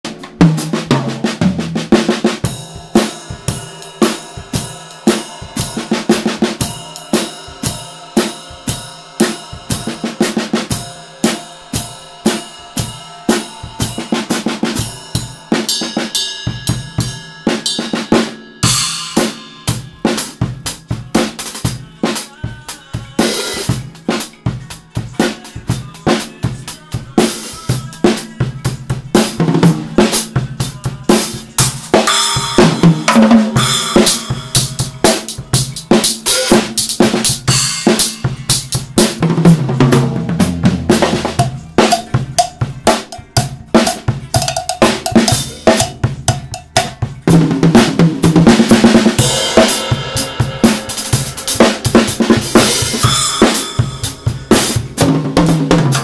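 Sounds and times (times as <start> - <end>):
bass drum: 0.0 - 3.7, 27.7 - 56.0
cymbal hits: 10.7 - 20.5.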